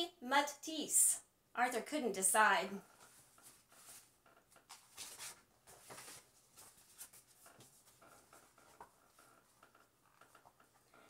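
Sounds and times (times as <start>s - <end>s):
paper pages rustling: 3.0s - 9.0s.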